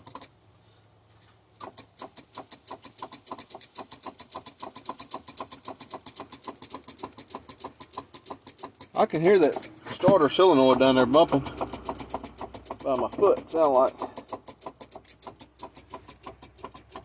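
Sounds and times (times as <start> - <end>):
starter solenoid clicking: 0.0 - 0.3, 1.6 - 17.0.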